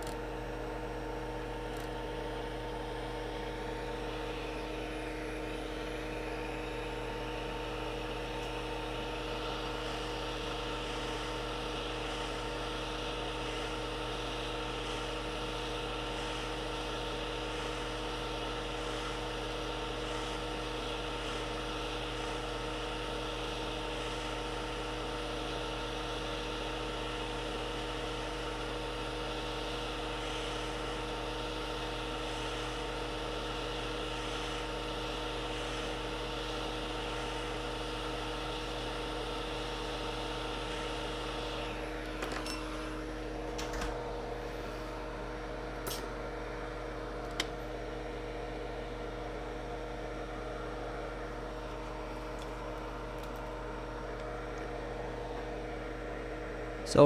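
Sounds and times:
fan hum and whine: 0.0s - 57.0s
hot air blowing hiss: 9.2s - 38.7s.

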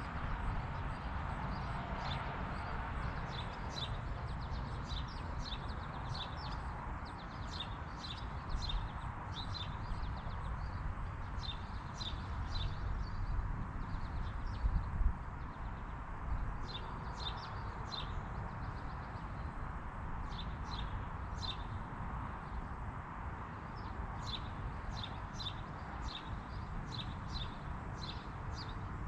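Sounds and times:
small birds chirping: 23.7s - 28.9s.

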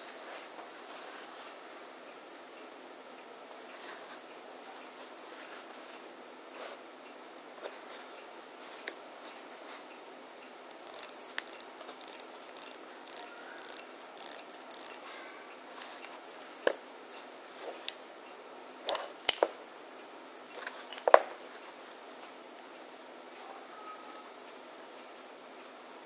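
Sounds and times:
watch bezel ratcheting clicks: 10.7s - 15.0s.

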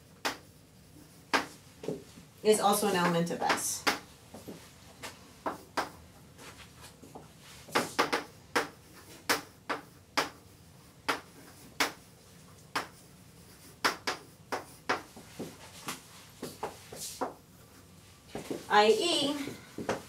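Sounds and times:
chalk tapping and scratching: 0.1s - 2.2s, 5.4s - 17.8s.

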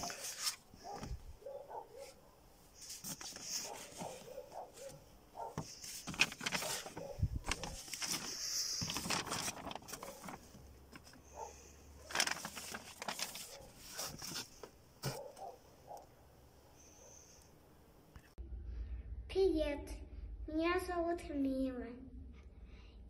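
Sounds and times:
paper and boards shuffled by hand: 0.0s - 1.3s, 2.8s - 15.6s.

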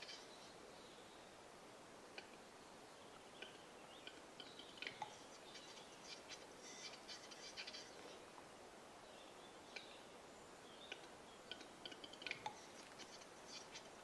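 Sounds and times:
bird clicking and rasping display song: 3.1s - 8.2s, 9.6s - 10.1s, 10.8s - 14.0s.

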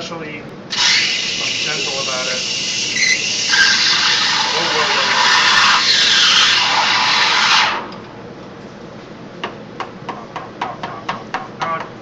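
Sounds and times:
steam wand hissing: 0.7s - 7.9s.

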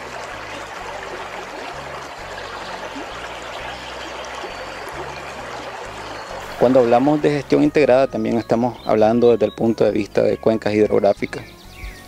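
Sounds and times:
stream rushing over stones: 0.0s - 8.2s.

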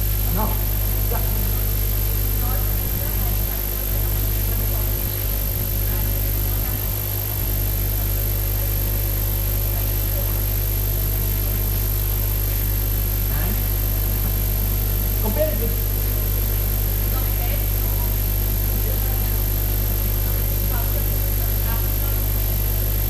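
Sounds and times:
electrical hum with hiss: 0.0s - 23.0s.

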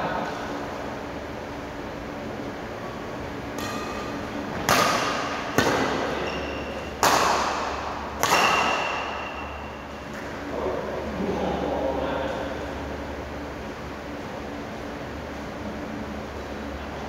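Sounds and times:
badminton rackets hitting shuttlecock: 3.5s - 10.3s.

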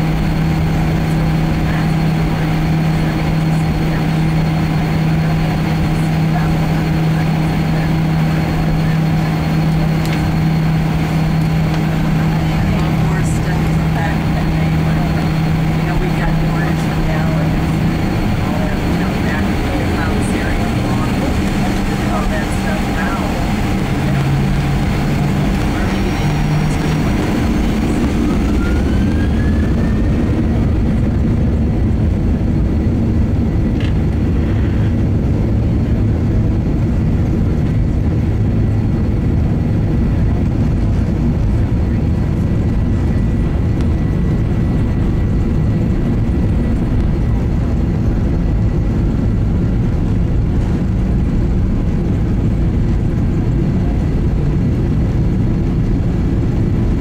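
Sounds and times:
engine whine: 0.0s - 57.0s
jet engines rumbling: 0.0s - 57.0s.

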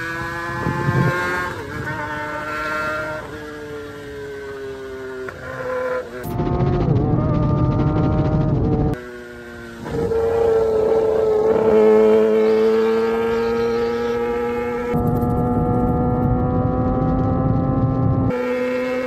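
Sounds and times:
wind rushing over microphone: 0.0s - 3.4s, 6.2s - 9.0s, 14.2s - 18.4s
motorcycle engine at high revs: 0.0s - 19.0s.

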